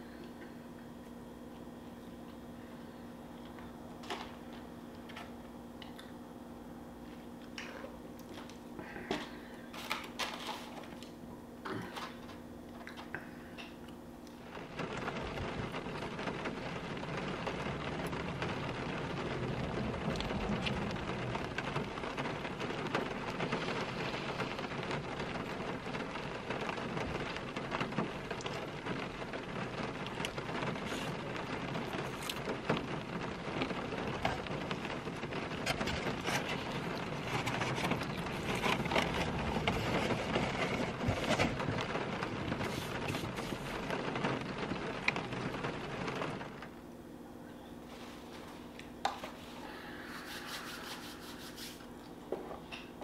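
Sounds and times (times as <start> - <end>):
rain on car roof from inside: 14.0 - 47.3.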